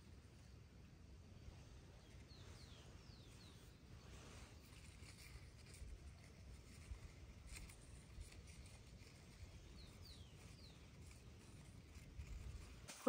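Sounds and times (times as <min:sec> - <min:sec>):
high falling bird chirps: 0:01.4 - 0:05.3, 0:08.7 - 0:12.8.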